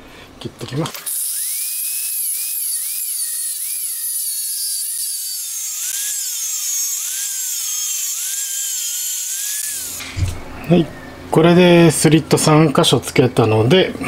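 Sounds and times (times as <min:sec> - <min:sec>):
angle grinder cutting steel: 0:01.0 - 0:10.2.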